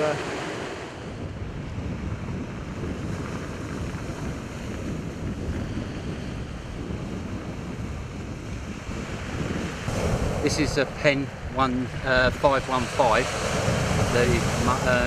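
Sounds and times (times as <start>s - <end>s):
wind buffeting microphone: 0.0s - 15.0s
surf breaking on shingle beach: 9.0s - 15.0s.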